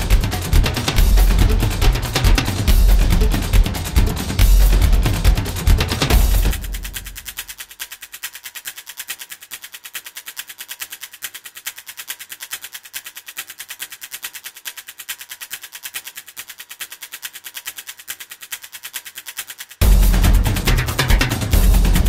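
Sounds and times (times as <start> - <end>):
fast sharp clicks: 0.0 - 22.0.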